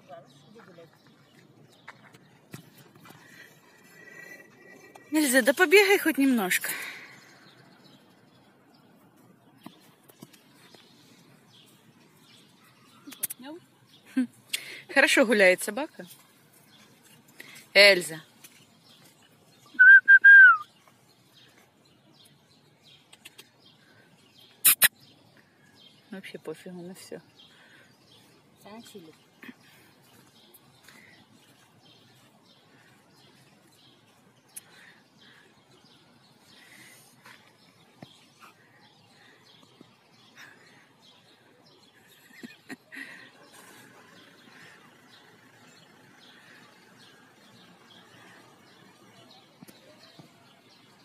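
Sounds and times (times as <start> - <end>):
small birds chirping: 0.0 - 51.0
person whistling for dog: 19.8 - 20.6.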